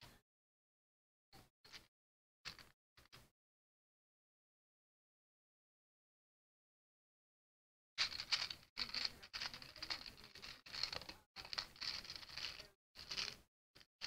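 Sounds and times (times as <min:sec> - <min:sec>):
plastic bag crinkling: 0:08.0 - 0:13.4
plastic toy bricks shifting: 0:08.0 - 0:13.9.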